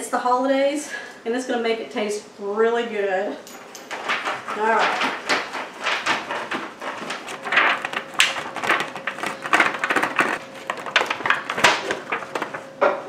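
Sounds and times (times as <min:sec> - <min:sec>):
foil crinkling: 0:04.0 - 0:12.8.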